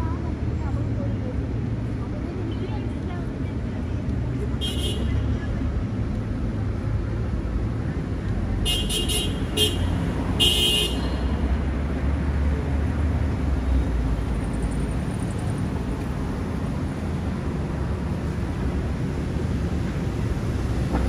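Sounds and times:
passing vehicles rumbling: 0.0s - 21.0s
car horn toots: 8.7s - 11.0s.

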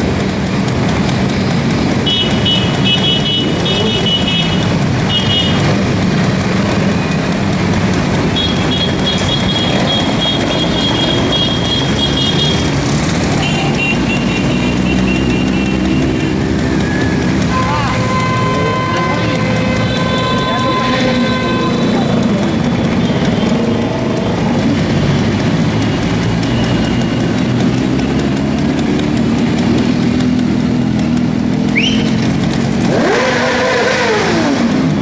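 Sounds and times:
motorcycles passing: 0.0s - 35.0s
high steady tone: 13.3s - 27.6s.

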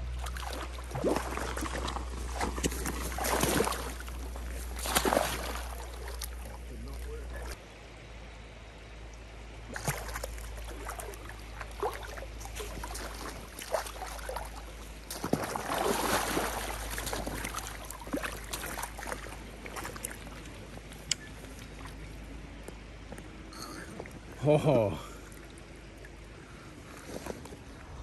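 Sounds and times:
fish splashing in shallow water: 0.0s - 7.6s, 9.6s - 22.4s.

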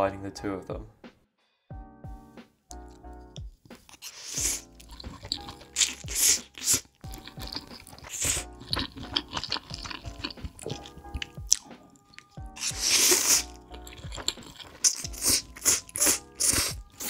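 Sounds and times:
soft background music: 0.0s - 17.0s
chewing: 2.7s - 17.0s
loud wet slurping of noodles: 3.9s - 17.0s.

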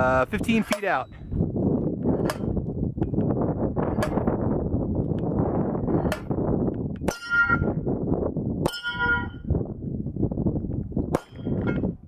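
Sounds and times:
wind on microphone: 0.0s - 12.0s
steel target clanging: 7.1s - 7.8s, 8.6s - 9.4s.

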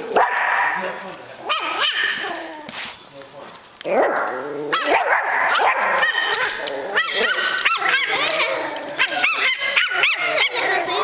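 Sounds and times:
dog barking: 0.1s - 0.8s, 1.5s - 2.2s, 4.0s - 8.2s
puppy yipping: 1.5s - 2.6s, 4.7s - 11.0s.

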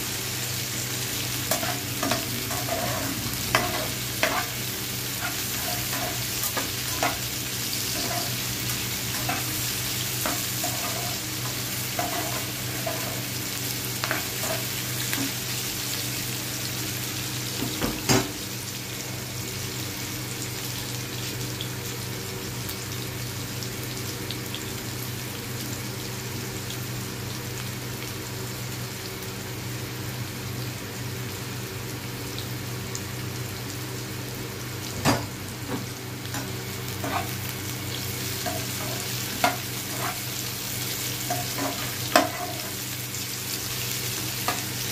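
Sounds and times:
onions sizzling in oil: 0.0s - 44.9s
spatula scraping and stirring: 1.5s - 4.6s, 5.2s - 7.2s, 10.2s - 13.2s, 37.0s - 37.4s, 38.4s - 40.4s.

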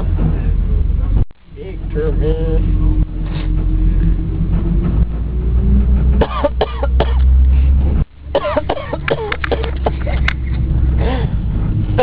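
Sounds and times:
bus rumbling: 0.0s - 12.0s
person coughing: 6.2s - 7.2s, 8.4s - 10.0s.

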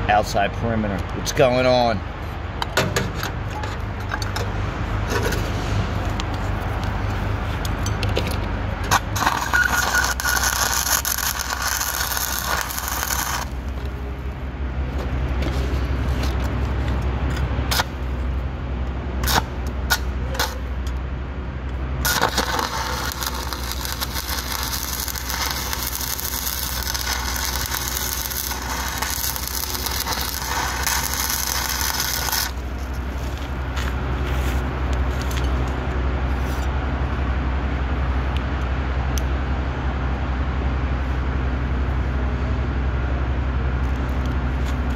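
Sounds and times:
steady low hum: 0.0s - 44.9s
welding arc crackling: 8.7s - 14.4s, 15.9s - 18.4s, 19.2s - 20.9s, 21.6s - 34.0s.

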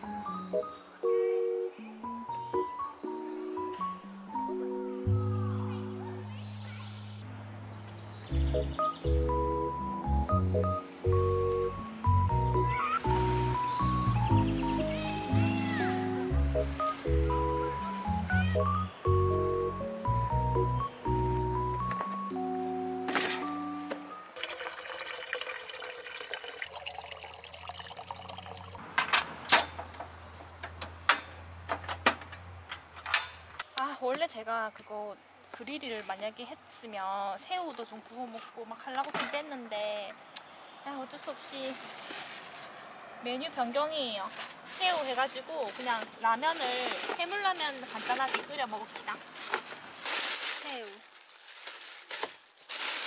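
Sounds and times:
background music melody over chords: 0.0s - 24.4s
water running and splashing: 24.4s - 28.8s.

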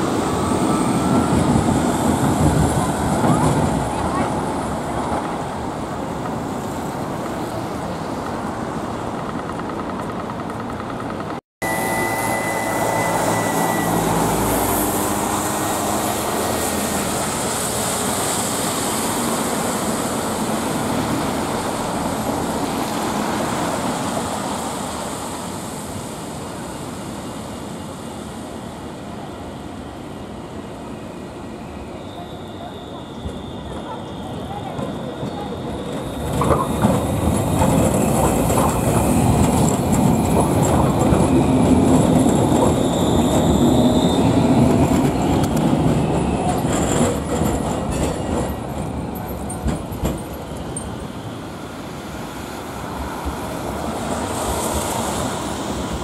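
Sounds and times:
tyres hissing on wet road: 11.7s - 27.2s, 51.4s - 56.0s.

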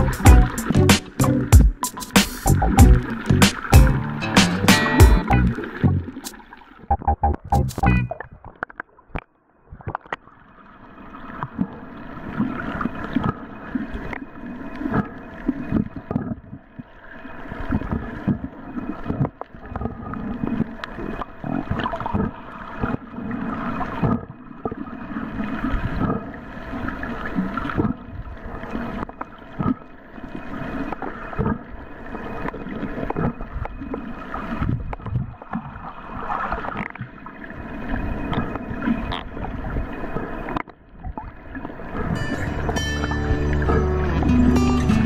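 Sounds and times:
water thumps and gurgles: 0.0s - 10.3s, 11.3s - 14.2s, 17.6s - 30.0s, 30.6s - 44.6s
muffled underwater waves: 2.3s - 8.6s.

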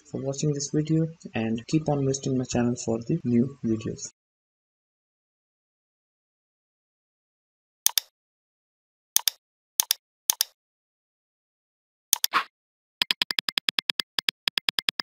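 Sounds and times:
mouse clicks: 7.9s - 8.1s, 9.2s - 10.6s, 12.2s - 15.0s
typing sound effect ticks: 7.9s - 8.1s, 9.2s - 10.6s, 12.2s - 15.0s.

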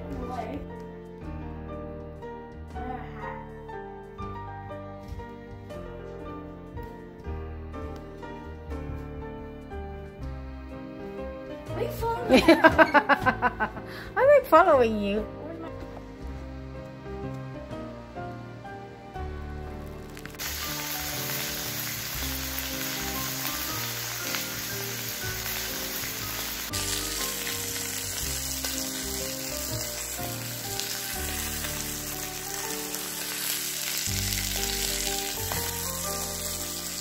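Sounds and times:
background music: 0.0s - 37.0s
steak sizzling in a skillet: 19.7s - 37.0s.

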